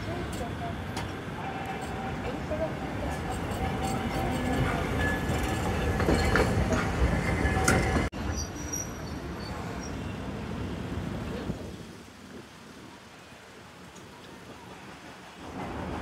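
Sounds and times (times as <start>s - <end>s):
streetcar wheels rumbling on rails: 0.0s - 16.0s
tram running slowly: 0.0s - 16.0s
high wheel squeals: 1.4s - 10.2s.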